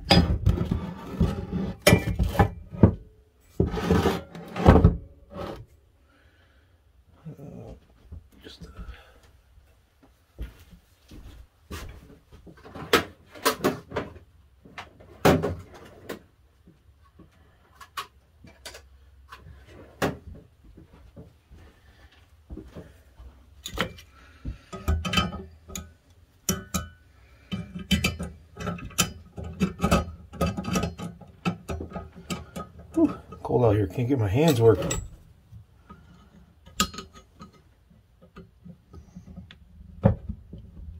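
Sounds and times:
metal tools clinking on iron: 34.4 - 35.2.

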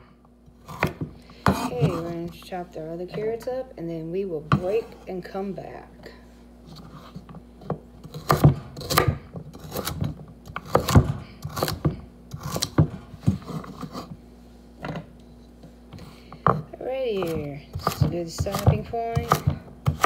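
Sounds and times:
knife chopping on wooden board: 0.6 - 2.2, 4.5 - 5.0, 7.6 - 14.1, 15.9 - 20.0.

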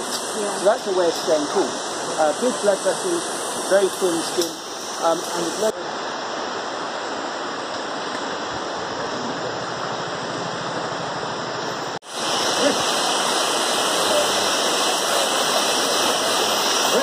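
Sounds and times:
running water rushing: 0.0 - 17.0.

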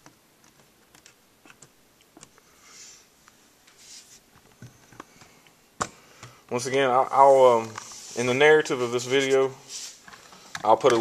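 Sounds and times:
soft rustles: 2.4 - 5.3, 6.5 - 10.8.

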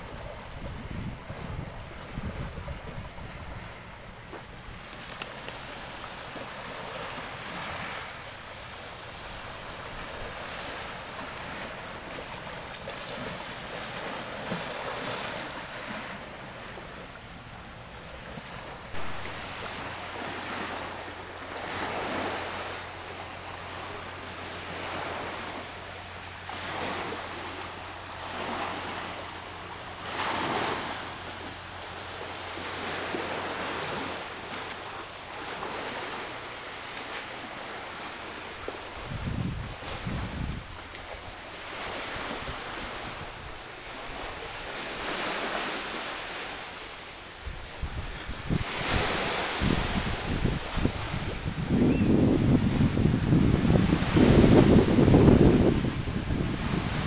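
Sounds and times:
wind buffeting microphone: 0.0 - 4.9, 38.9 - 40.9, 47.4 - 57.0.

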